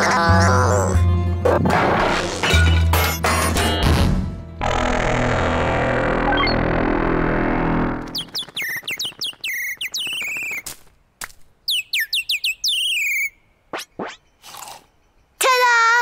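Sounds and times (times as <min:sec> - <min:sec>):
music: 0:00.0 - 0:06.6
cartoon bird chirping: 0:08.1 - 0:10.7, 0:11.7 - 0:14.6.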